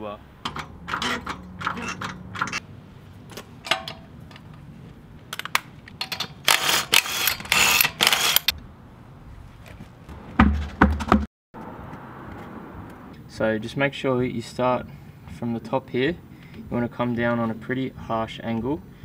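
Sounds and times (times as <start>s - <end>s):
impact wrench bursts: 0.4s - 2.6s, 6.0s - 8.5s
wheel brace metallic clicks: 0.4s - 2.6s, 3.3s - 4.6s.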